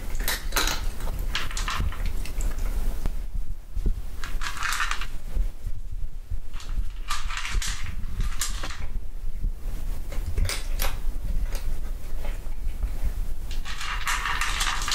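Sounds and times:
low steady hum: 0.0s - 14.9s
cat crunching dry kibble: 0.1s - 2.7s, 4.2s - 5.1s, 6.6s - 8.9s, 13.5s - 14.9s.

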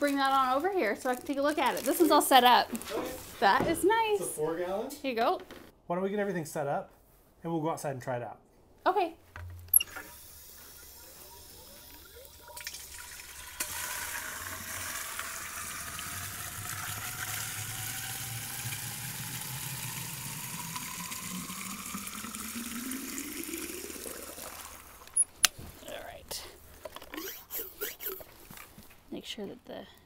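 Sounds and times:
water filling a tank: 9.7s - 25.2s.

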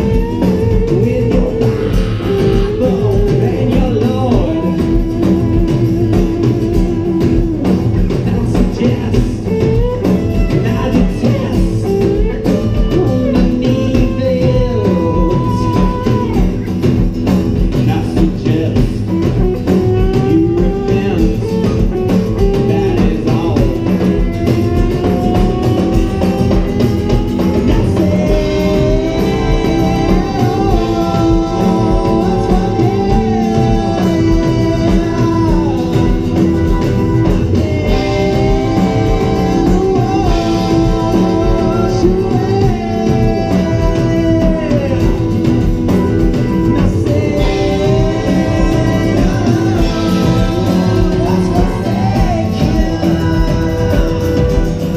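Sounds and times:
live band playing: 0.0s - 54.9s
person singing: 0.0s - 54.9s.

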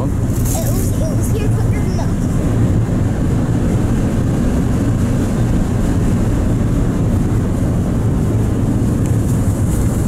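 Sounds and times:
ferry engines droning: 0.0s - 10.0s.

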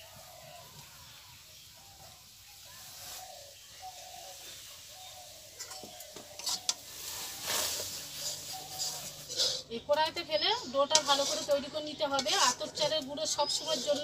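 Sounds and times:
hot water hissing in wok: 0.0s - 9.7s, 10.4s - 14.0s
ladle knocking and scraping wok: 5.6s - 10.0s, 10.8s - 14.0s.

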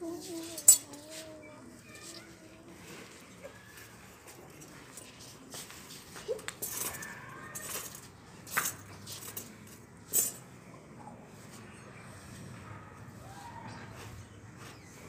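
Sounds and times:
metal tongs clinking on embers: 0.4s - 1.0s, 6.4s - 10.5s.

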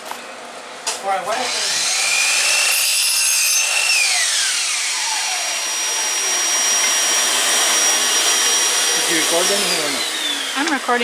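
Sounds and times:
shop vacuum whining: 0.0s - 11.0s
electric miter saw cutting wood: 0.9s - 11.0s.

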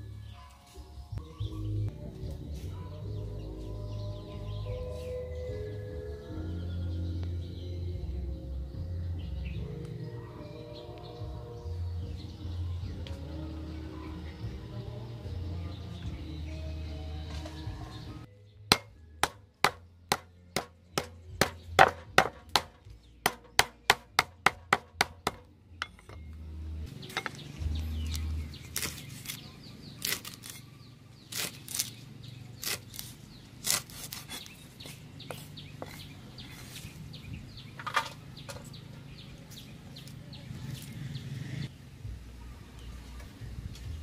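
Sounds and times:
cleaver chopping on wooden board: 18.7s - 25.5s.

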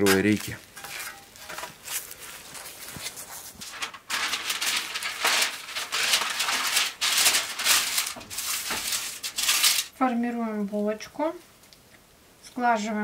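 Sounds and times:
baking paper crinkling: 0.0s - 10.0s.

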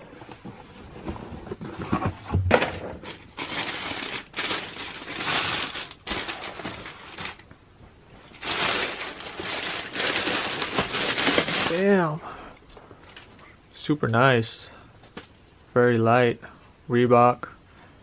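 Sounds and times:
tissue paper rustling: 3.0s - 7.4s, 8.2s - 12.0s.

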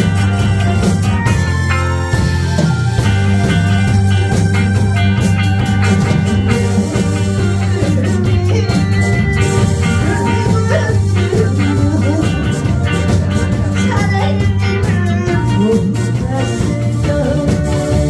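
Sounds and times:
drum kit beat: 0.0s - 18.0s
live band playing: 0.0s - 18.0s
woman singing: 6.5s - 9.1s, 10.0s - 12.8s, 13.7s - 18.0s.

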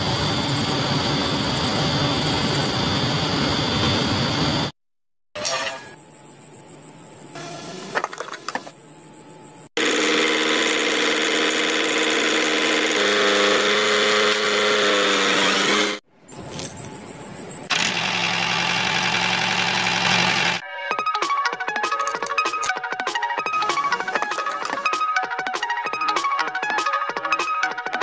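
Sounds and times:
small motor running with a whine: 9.1s - 16.0s, 17.4s - 20.6s.

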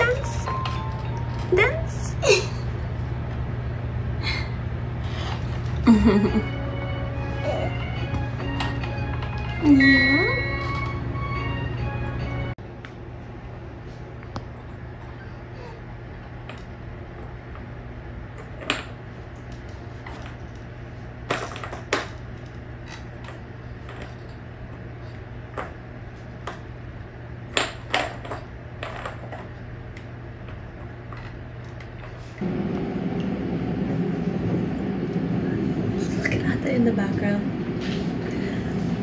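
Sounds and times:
steady low hum: 0.0s - 39.0s.

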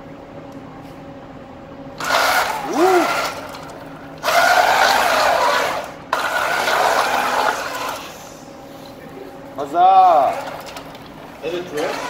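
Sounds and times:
robot drive motors whining: 2.0s - 8.4s, 9.9s - 12.0s.

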